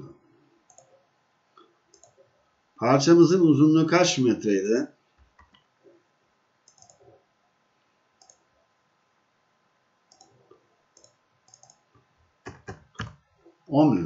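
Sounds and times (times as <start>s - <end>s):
computer mouse clicks: 0.7s - 1.0s, 1.6s - 2.3s, 5.2s - 5.7s, 6.6s - 7.2s, 8.2s - 8.5s, 10.1s - 13.2s.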